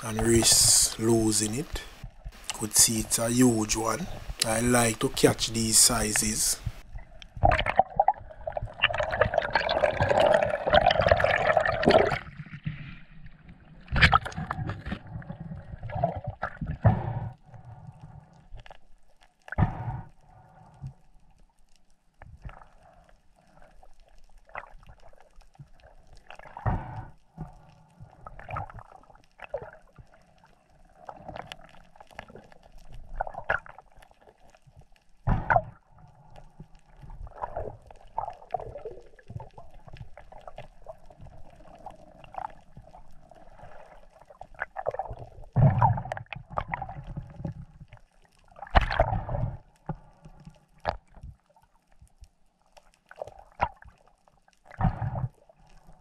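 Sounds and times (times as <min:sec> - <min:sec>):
underwater swishing and gurgling: 0:00.0 - 0:56.0
underwater thumps: 0:19.5 - 0:20.1, 0:35.2 - 0:35.8.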